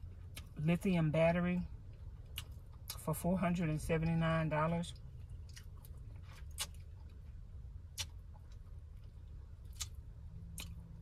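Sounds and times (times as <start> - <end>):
low steady hum: 0.0 - 11.0
mouth clicks and lip smacks: 5.0 - 7.2, 7.8 - 8.8, 9.6 - 10.9.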